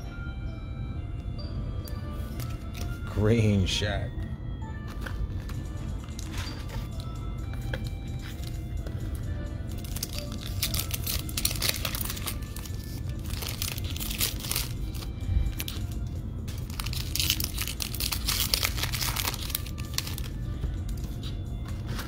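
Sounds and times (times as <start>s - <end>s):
foil wrappers crinkling and tearing: 9.8s - 22.0s.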